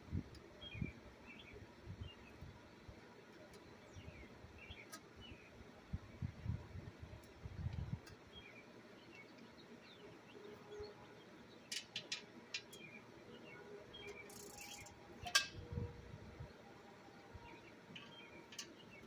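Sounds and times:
faint bird chirps: 12.7 - 16.6.

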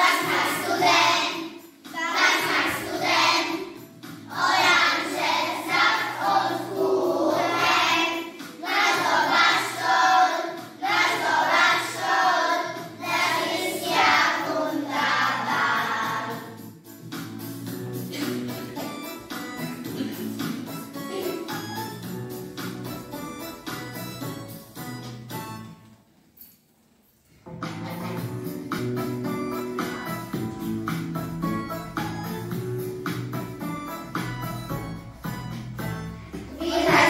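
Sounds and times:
children singing: 0.0 - 16.6, 36.4 - 37.0.

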